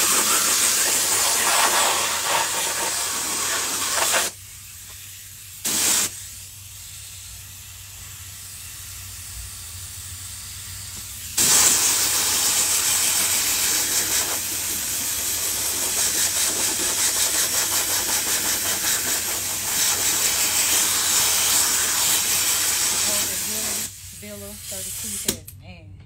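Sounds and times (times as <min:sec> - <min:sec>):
spray gun hissing: 0:00.0 - 0:06.4, 0:11.2 - 0:25.3.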